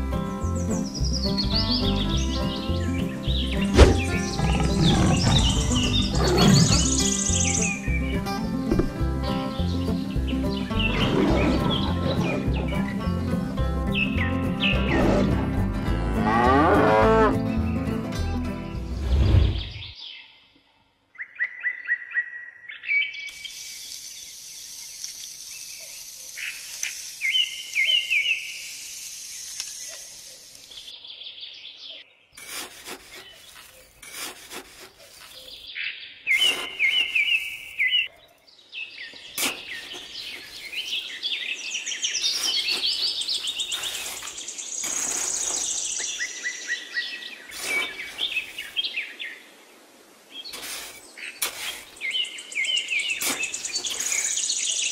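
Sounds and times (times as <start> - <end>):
small birds chirping and trilling: 0.0 - 18.0, 19.0 - 54.9.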